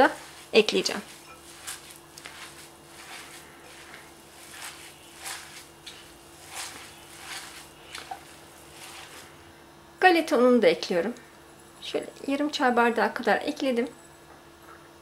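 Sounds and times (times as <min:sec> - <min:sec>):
hand kneading wet mixture: 0:00.0 - 0:09.5.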